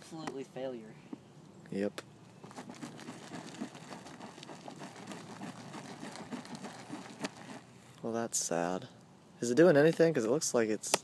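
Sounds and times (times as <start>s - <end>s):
small crackles and rustling: 2.4s - 7.6s.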